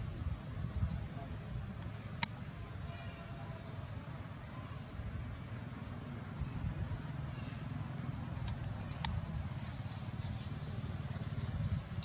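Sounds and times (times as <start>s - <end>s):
insect calling high tone: 0.0s - 9.0s
low continuous rumble: 0.0s - 12.0s.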